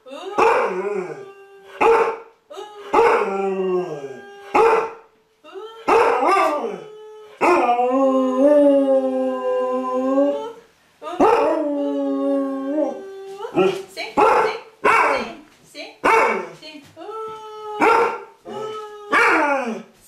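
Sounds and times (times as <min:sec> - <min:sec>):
puppy howling: 0:05.8 - 0:10.6.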